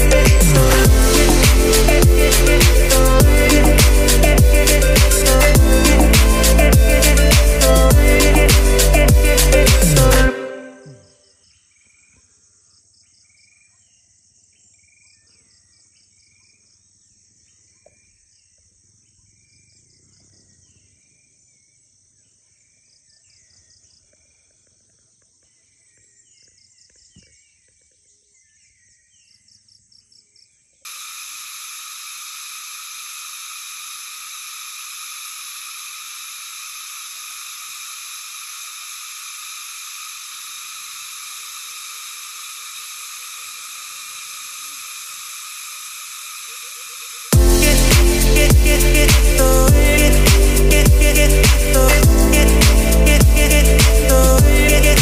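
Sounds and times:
high-pitched insect drone: 0.0s - 11.1s, 30.9s - 55.0s
insects chirping in trills: 33.0s - 47.4s.

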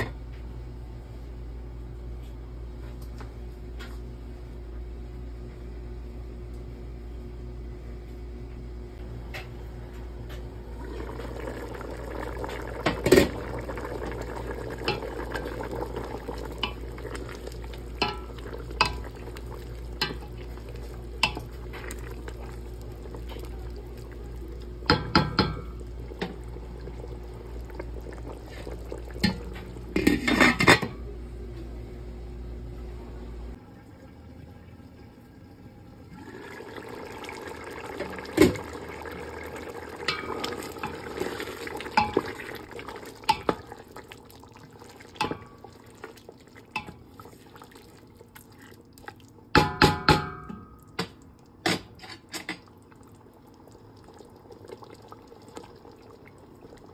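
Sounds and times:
wooden spoon stirring in pot: 10.9s - 30.6s
spoon knocking against pot: 24.9s - 26.3s.

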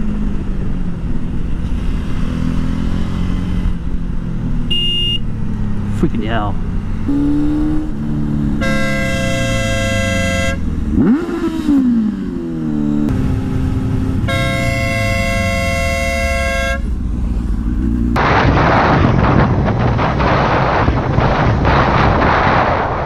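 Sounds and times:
motorcycle engine revving: 0.0s - 23.0s
vehicle horn blasts: 4.7s - 5.2s, 8.6s - 10.7s, 14.2s - 16.9s.

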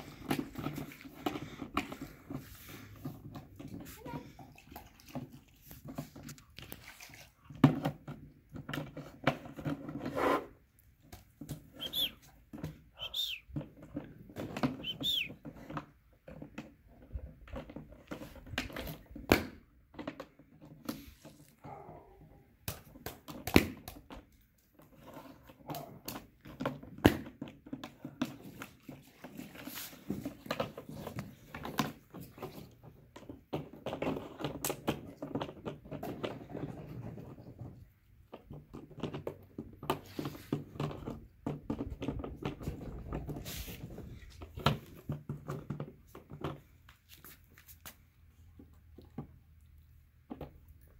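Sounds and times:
bucket scraping on stone: 0.0s - 10.8s, 26.2s - 37.8s.

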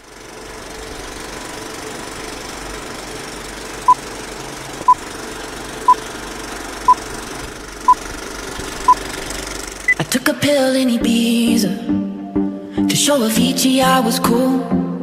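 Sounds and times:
film projector whirring: 0.0s - 10.2s.

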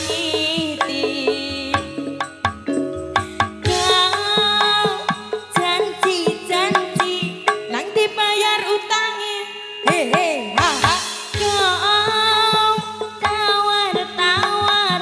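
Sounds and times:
hand drum strokes: 0.0s - 7.8s.

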